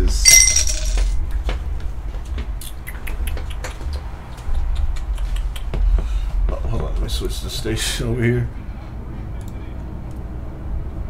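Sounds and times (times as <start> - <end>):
bright ringing rustle: 0.1 - 1.2.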